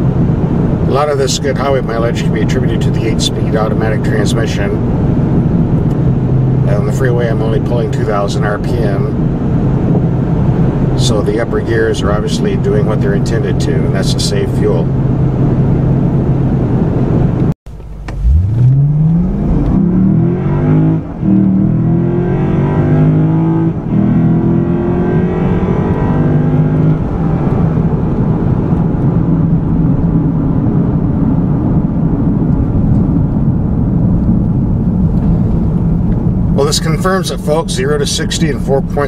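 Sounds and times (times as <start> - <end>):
car engine accelerating from inside cabin: 12.5 - 39.0.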